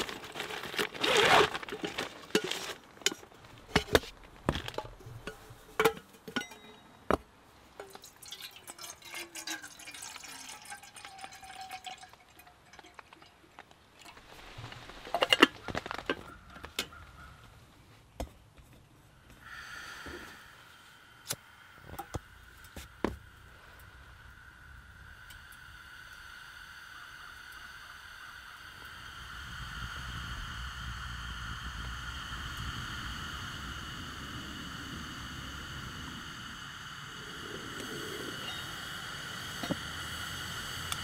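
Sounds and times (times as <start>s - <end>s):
plastic bag crinkling: 0.0s - 5.0s, 13.5s - 16.8s
water pouring into kettle: 7.8s - 15.5s
gas stove hissing: 19.3s - 41.0s.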